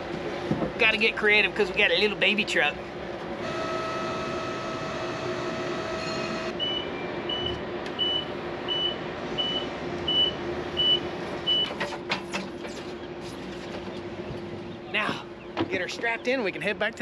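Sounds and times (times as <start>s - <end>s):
steady low hum: 0.0s - 11.5s
electric lift motor whining: 3.4s - 6.8s
high warning beeps: 3.5s - 11.7s.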